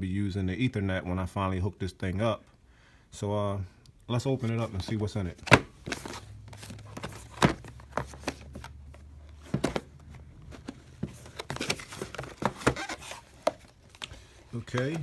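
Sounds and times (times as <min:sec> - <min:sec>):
cardboard box handled and opened: 0:04.4 - 0:15.0.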